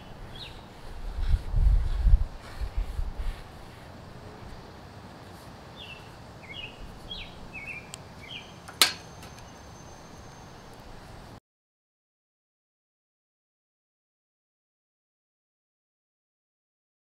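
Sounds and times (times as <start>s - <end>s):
bird chirping: 0.0s - 0.8s, 5.2s - 10.9s
faint outdoor background noise: 0.0s - 11.4s.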